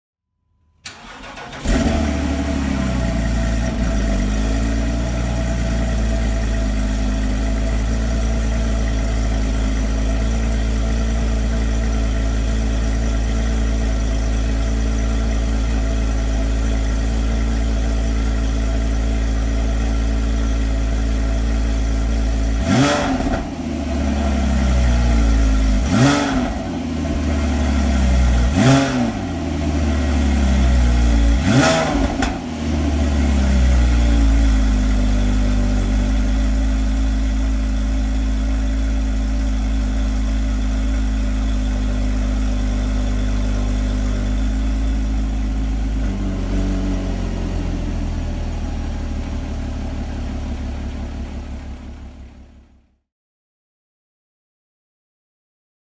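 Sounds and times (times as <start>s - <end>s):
starter motor cranking: 0.8s - 1.9s
car engine idling: 0.8s - 52.8s.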